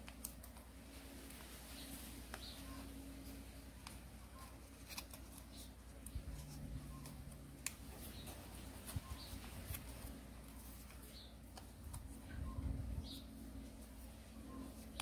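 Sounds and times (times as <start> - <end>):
crisp paper clicks: 0.0 - 0.7, 3.8 - 6.4
paper rustling and crinkling: 0.0 - 12.3
low steady hum: 0.0 - 15.0.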